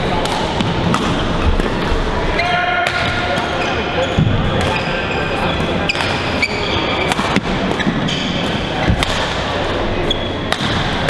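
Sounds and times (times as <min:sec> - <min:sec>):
rackets hitting shuttlecocks: 0:00.2 - 0:01.8, 0:05.6 - 0:06.2, 0:07.0 - 0:09.6, 0:10.5 - 0:11.0
sneakers squeaking on court: 0:03.4 - 0:08.5, 0:10.0 - 0:10.6.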